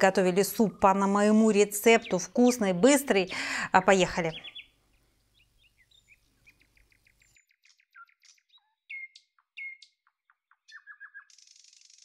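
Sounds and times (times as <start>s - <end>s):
bird chirping and trilling: 1.6s - 2.9s, 4.1s - 12.0s.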